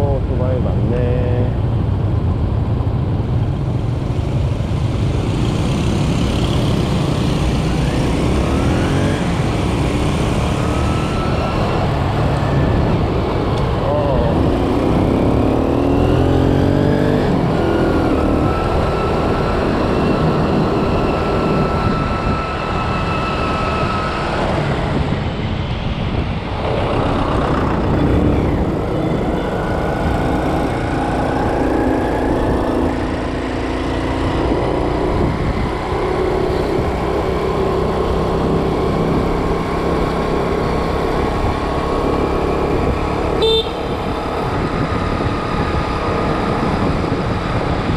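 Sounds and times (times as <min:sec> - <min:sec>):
road and wind noise: 0:00.0 - 0:47.9
motor scooter engine: 0:42.6 - 0:47.2.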